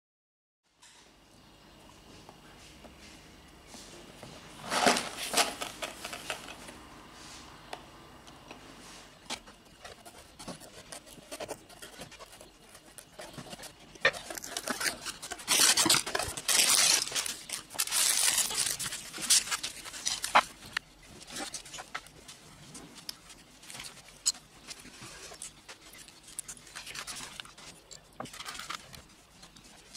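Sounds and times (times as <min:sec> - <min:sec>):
packaging rustling and tearing: 0:04.6 - 0:06.6, 0:09.3 - 0:29.9.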